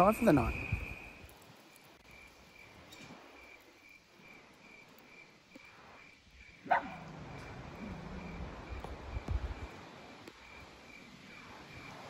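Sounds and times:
crickets chirping: 0.0s - 12.0s.

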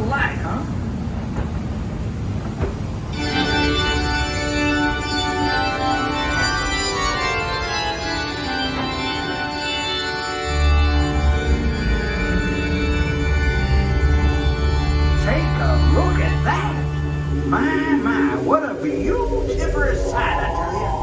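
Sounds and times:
train rumbling: 0.0s - 21.0s
organ chords: 3.1s - 21.0s
deep bass note: 10.7s - 21.0s.

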